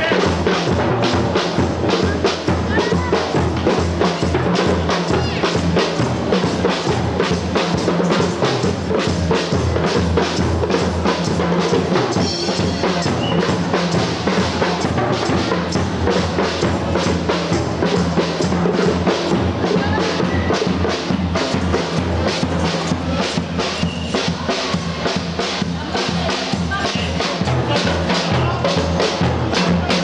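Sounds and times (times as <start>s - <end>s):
drum kit beat: 0.0s - 30.0s.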